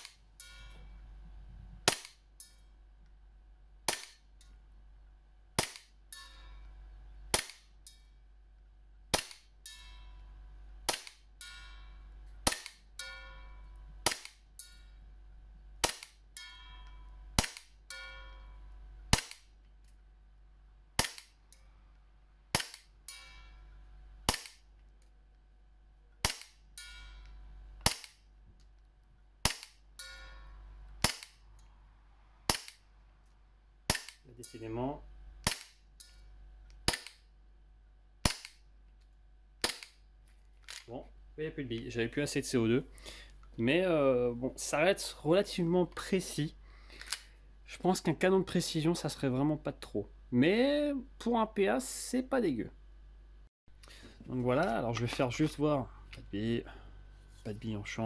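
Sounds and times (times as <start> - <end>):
airsoft pistol shots: 0.0 - 0.2, 1.8 - 2.2, 3.9 - 4.2, 5.6 - 6.0, 7.3 - 7.7, 9.1 - 9.5, 10.9 - 11.3, 12.4 - 13.0, 14.0 - 14.4, 15.8 - 16.2, 17.4 - 18.2, 19.1 - 19.5, 21.0 - 21.4, 22.5 - 22.9, 24.3 - 24.6, 26.2 - 26.6, 27.8 - 28.2, 29.4 - 29.8, 31.0 - 31.4, 32.5 - 32.8, 33.9 - 34.2, 35.4 - 35.8, 36.9 - 37.3, 38.2 - 38.6, 39.6 - 40.0.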